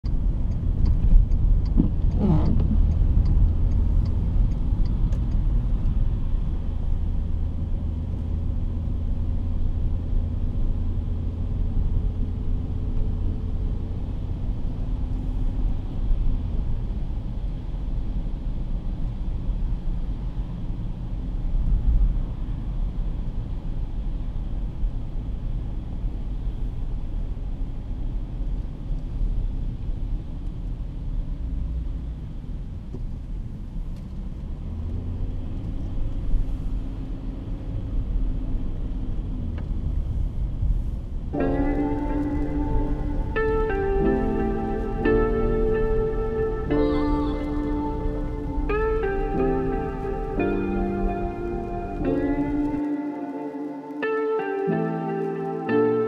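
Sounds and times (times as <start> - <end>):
light regular ticking: 0.0 - 6.0
car engine and tyres on wet road: 0.0 - 56.0.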